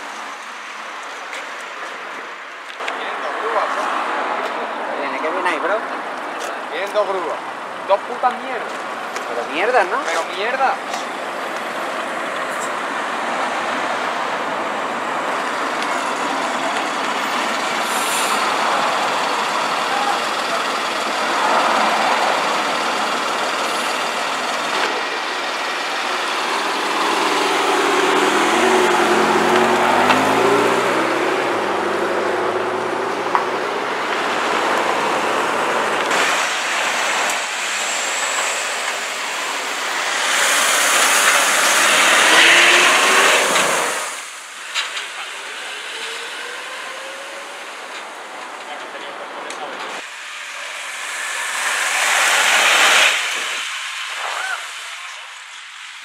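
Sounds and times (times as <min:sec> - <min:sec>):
traffic driving past: 0:00.0 - 0:56.0
car engine changing pitch: 0:13.0 - 0:48.4, 0:49.0 - 0:55.2.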